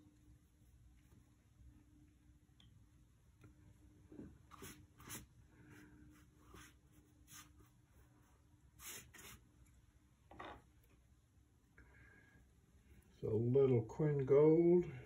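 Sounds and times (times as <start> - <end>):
brush swishing on paper: 0.0 - 1.6, 4.4 - 9.5.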